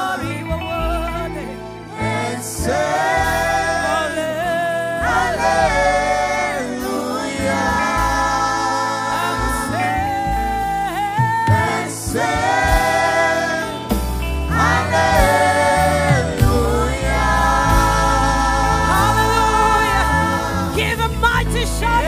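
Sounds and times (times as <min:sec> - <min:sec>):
backing singers: 0:00.0 - 0:22.0
live band with electric guitars: 0:00.0 - 0:22.0
woman singing lead: 0:00.0 - 0:22.0.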